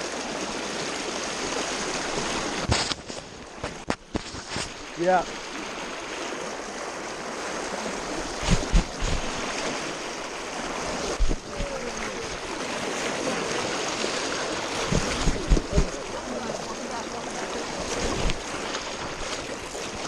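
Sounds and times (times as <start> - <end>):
river rushing over rocks: 4.7 - 20.0.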